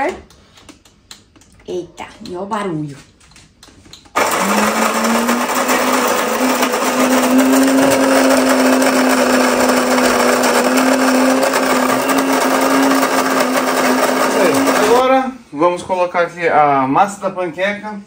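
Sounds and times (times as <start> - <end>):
coffee grinder whirring: 4.2 - 15.1.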